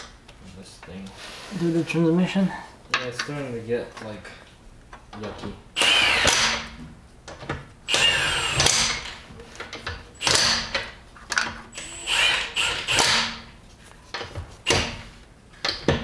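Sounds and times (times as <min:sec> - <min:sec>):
cordless power tool whining: 0:05.8 - 0:06.6, 0:07.9 - 0:09.1, 0:11.7 - 0:13.3.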